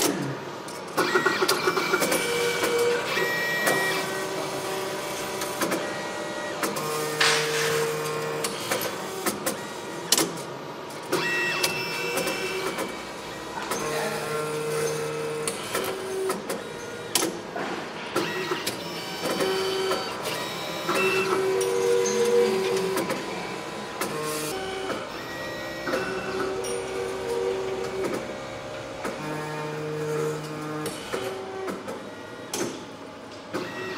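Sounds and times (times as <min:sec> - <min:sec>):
electric motors whining: 0:00.9 - 0:17.4, 0:18.1 - 0:33.9
machine clicks and knocks: 0:06.6 - 0:13.0, 0:14.8 - 0:23.3, 0:27.6 - 0:29.4, 0:30.1 - 0:33.8.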